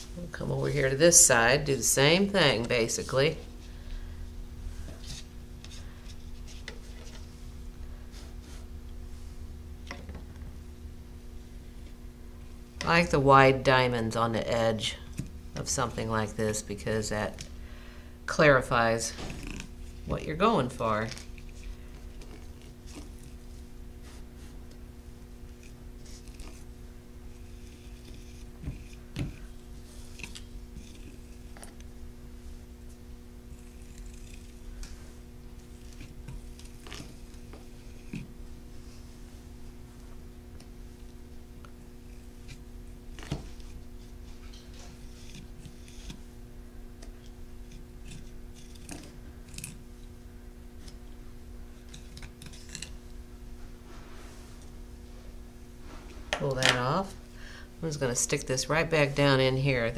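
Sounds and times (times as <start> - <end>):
low hum: 0.0 - 59.9.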